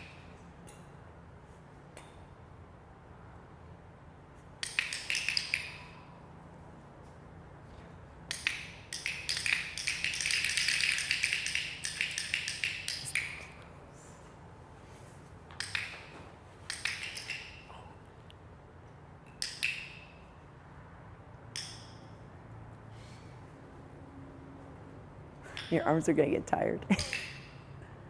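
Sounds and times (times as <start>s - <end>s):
training clicker clicks: 4.6s - 6.0s, 8.3s - 13.4s, 15.6s - 16.1s, 16.7s - 17.6s, 27.0s - 27.5s.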